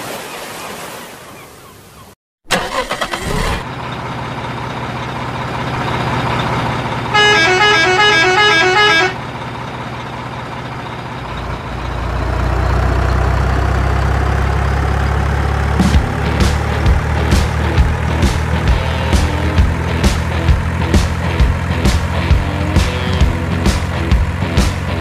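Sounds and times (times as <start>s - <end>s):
truck engine running: 2.5s - 25.0s
musical horn tune: 7.1s - 9.2s, 22.3s - 23.6s.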